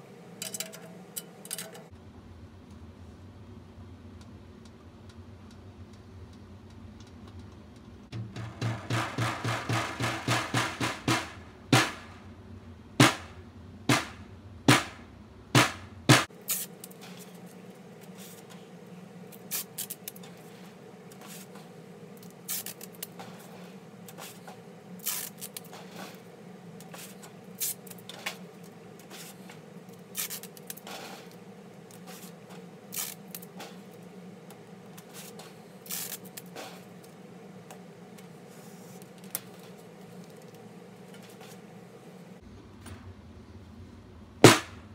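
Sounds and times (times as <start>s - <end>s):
snare drum hits: 8.2s - 12.2s, 13.0s - 15.0s, 15.6s - 16.3s, 44.4s - 44.9s
masking tape tearing: 16.5s - 16.8s, 22.5s - 23.1s, 25.0s - 25.7s, 30.1s - 30.9s, 32.9s - 33.5s, 35.9s - 36.5s.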